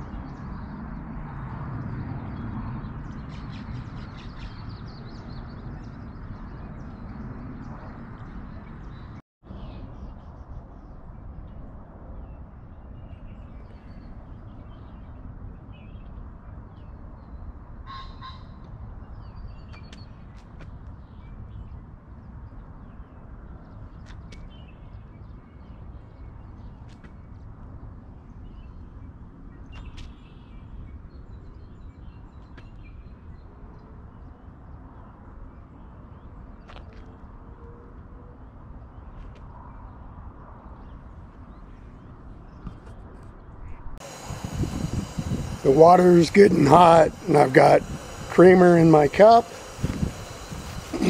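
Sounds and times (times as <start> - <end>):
birds chirping: 44.0 - 51.0
harsh bird calls: 44.0 - 51.0.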